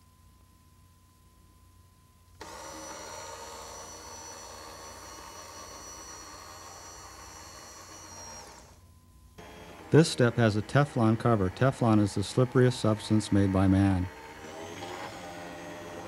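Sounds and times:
faint hum: 0.0 - 16.0
hand truck motor whining: 2.4 - 8.8, 9.4 - 16.0.

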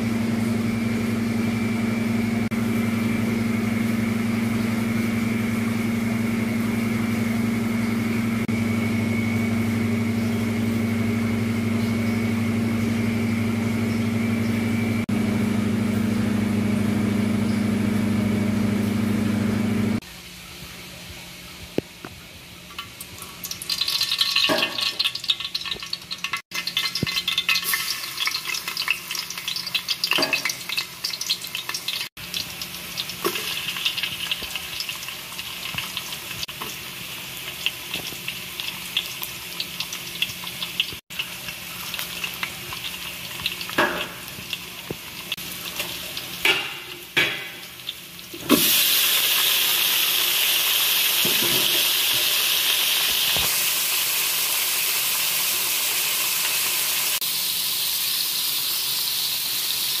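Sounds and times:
oil sizzling in a pan: 0.0 - 20.1, 22.6 - 60.0
meat sizzling in hot oil: 22.8 - 60.0.

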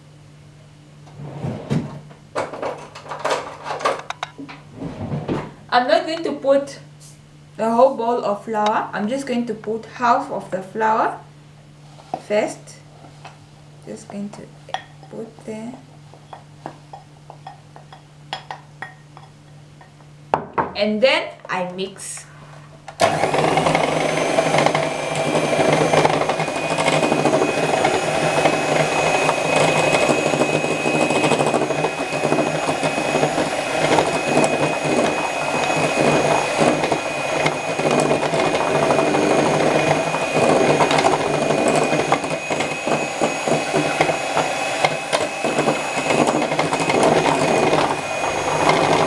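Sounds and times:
electric hand mixer whirring: 23.0 - 49.0.

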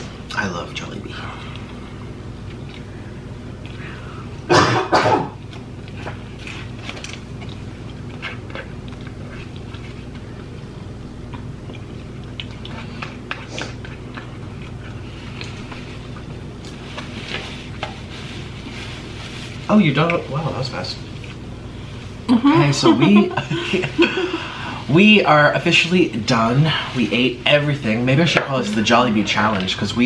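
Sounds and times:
steady low hum: 0.0 - 30.0
person coughing: 4.5 - 5.4
biting and chewing food: 5.4 - 18.1.

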